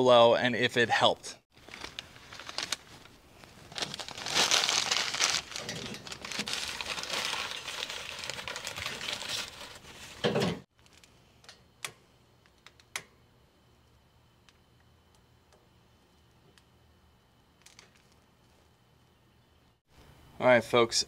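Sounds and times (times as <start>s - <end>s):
newspaper crumpling: 1.6s - 10.2s.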